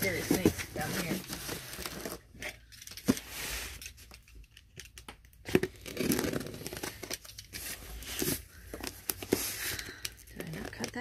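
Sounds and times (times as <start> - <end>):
cardboard box cut and torn: 5.4 - 8.4.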